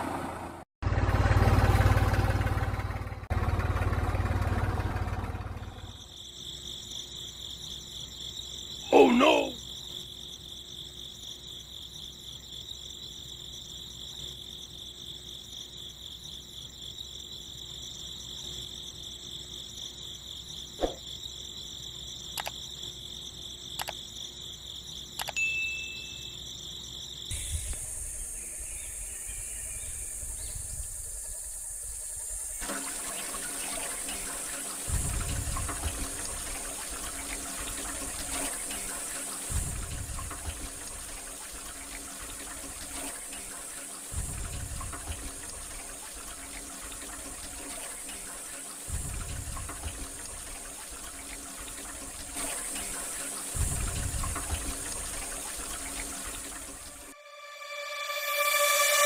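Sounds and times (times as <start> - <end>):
insect trilling: 5.9 - 25.2
light clicks: 22.4 - 22.6, 23.8 - 24.0, 25.2 - 25.4
electric water pump running: 32.2 - 57.2
water gushing: 32.6 - 57.2.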